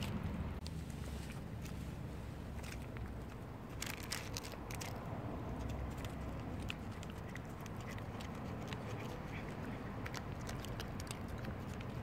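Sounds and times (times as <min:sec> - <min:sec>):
steady low rumble: 0:00.0 - 0:12.0
cat licking wet clicks: 0:05.6 - 0:12.0.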